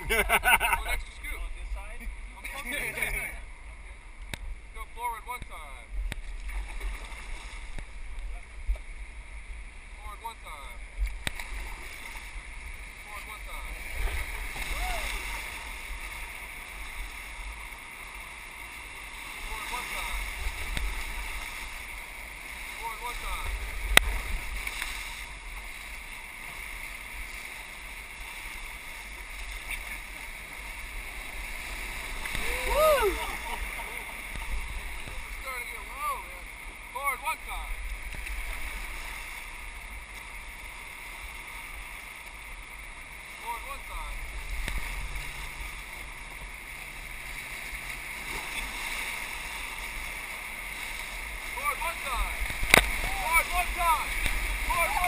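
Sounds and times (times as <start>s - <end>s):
river rapids rushing: 11.6s - 55.0s.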